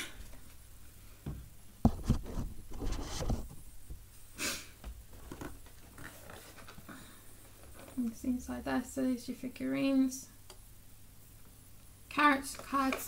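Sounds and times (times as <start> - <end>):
cardboard scraping and rustling: 1.9 - 3.6.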